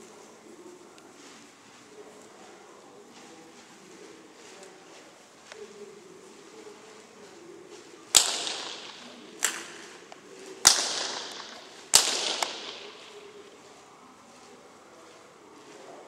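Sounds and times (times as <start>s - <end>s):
whip cracking with echo: 7.7s - 13.7s.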